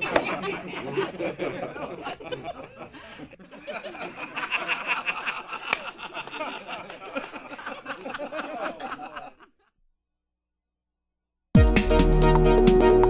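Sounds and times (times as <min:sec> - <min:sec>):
man laughing: 0:00.0 - 0:09.7.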